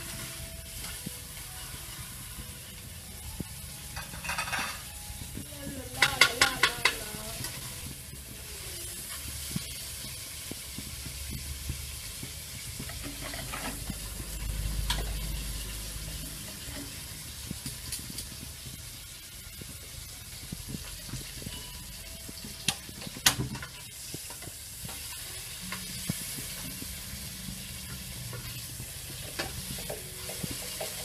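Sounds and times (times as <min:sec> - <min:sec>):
hiss of pot heating: 0:00.0 - 0:31.0
metal spoon clinking on pot: 0:04.0 - 0:04.9.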